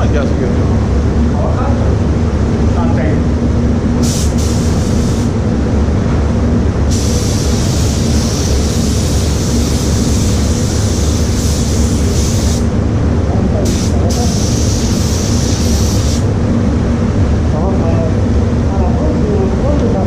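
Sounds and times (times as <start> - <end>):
ventilation rumble: 0.0 - 20.0
spray gun hissing: 4.0 - 5.4, 6.9 - 12.7, 13.6 - 16.3.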